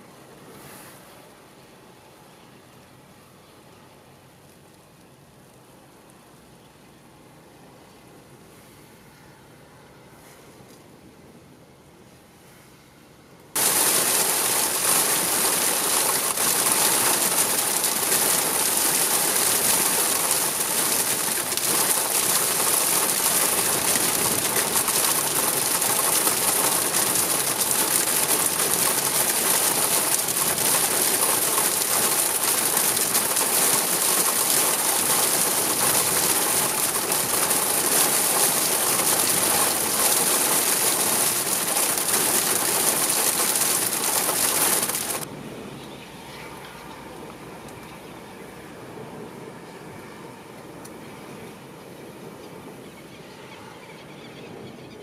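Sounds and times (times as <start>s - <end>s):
heavy rain hissing: 13.6s - 45.3s.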